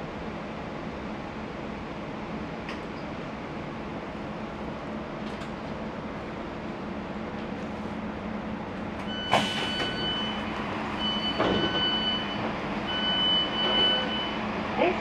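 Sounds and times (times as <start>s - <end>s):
train carriage hum: 0.0s - 15.0s
door warning tone beeping: 9.1s - 14.4s.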